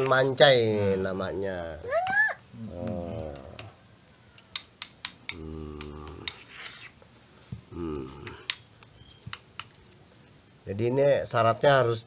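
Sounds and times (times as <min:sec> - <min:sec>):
short vocal sounds: 0:05.4 - 0:06.2, 0:07.7 - 0:08.4.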